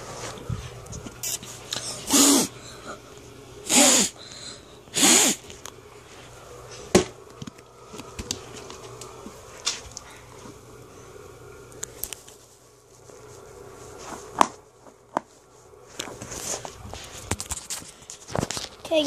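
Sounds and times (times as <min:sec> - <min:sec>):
cat hissing: 0:02.0 - 0:02.6, 0:03.6 - 0:04.2, 0:04.9 - 0:05.4.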